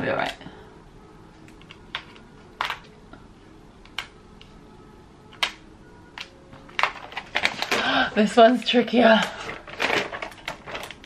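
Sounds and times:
plastic sheet crackling: 6.7s - 11.0s.

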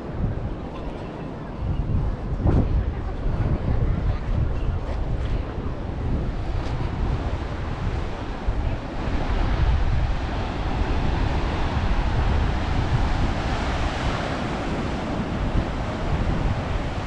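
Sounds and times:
wind buffeting microphone: 0.0s - 17.0s
ocean surf washing in: 5.0s - 17.0s.

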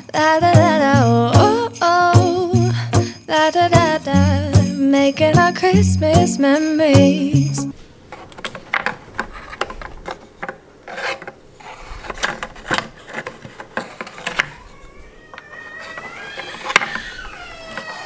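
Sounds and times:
blocks scraping and clacking: 8.1s - 18.0s.

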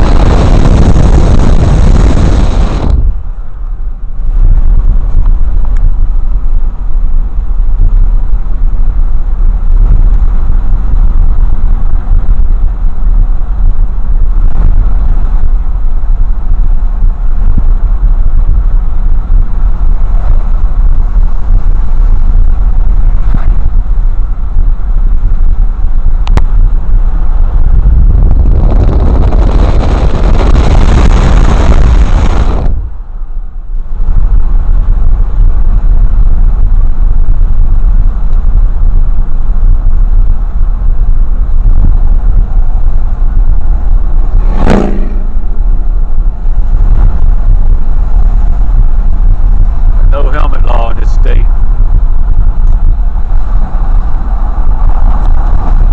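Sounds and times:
car interior road and engine rumble: 0.0s - 55.9s.

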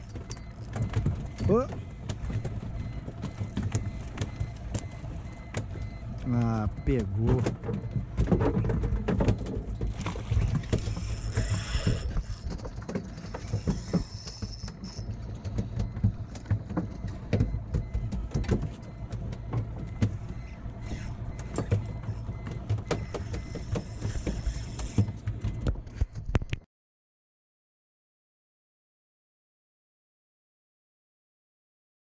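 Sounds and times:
low steady rumble: 0.0s - 26.0s
fishing reel reeling in: 10.7s - 12.4s.

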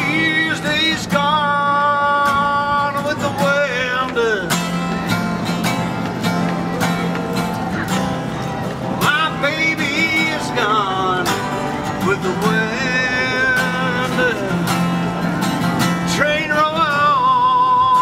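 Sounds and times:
man singing: 0.0s - 4.6s, 9.0s - 15.2s, 15.8s - 18.0s
strummed acoustic guitar: 0.0s - 18.0s.

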